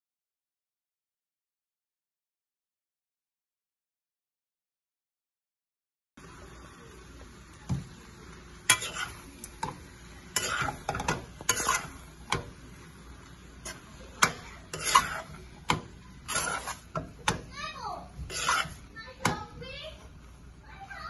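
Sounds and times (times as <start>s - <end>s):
faint sizzle: 6.2s - 21.0s
metal utensil scraping a pan: 8.6s - 12.6s, 13.5s - 19.5s.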